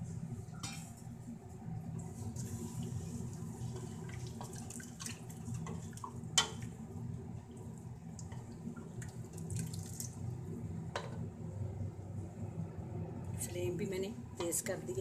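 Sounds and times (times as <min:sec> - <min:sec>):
low steady hum: 0:00.0 - 0:15.0
liquid sloshing in a pot: 0:02.0 - 0:06.8, 0:07.4 - 0:10.4.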